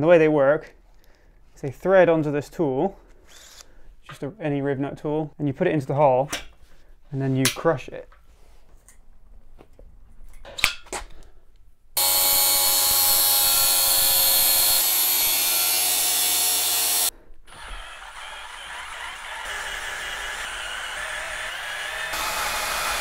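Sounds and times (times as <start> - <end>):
angle grinder cutting steel: 12.0 - 23.0
drill boring into steel: 12.0 - 23.0.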